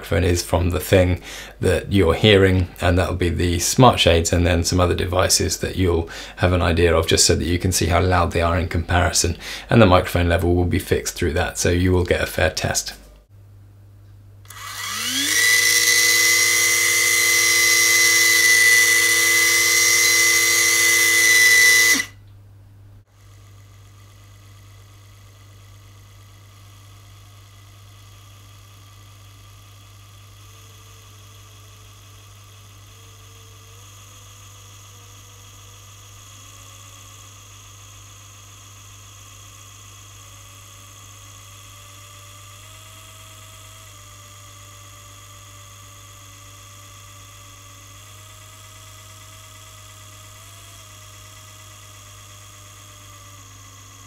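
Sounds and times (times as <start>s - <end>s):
blind motor humming: 14.1s - 22.4s, 23.0s - 54.0s.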